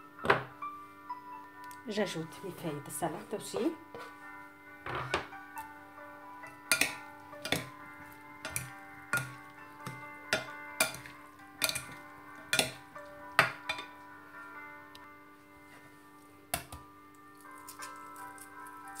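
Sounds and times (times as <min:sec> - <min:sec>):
background music: 0:00.0 - 0:19.0
salad servers clacking in bowl: 0:06.7 - 0:07.8, 0:08.4 - 0:12.8.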